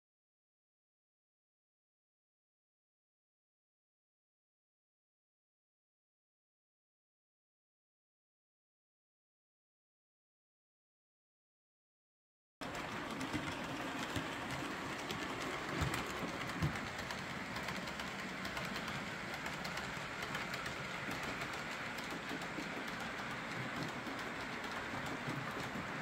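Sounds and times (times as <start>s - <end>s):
model train wheels rumbling on track: 12.6s - 26.0s.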